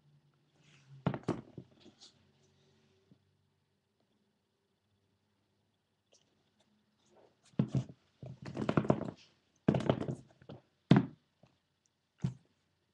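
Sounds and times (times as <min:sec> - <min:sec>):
sneakers knocking on wooden table: 0:07.6 - 0:11.2.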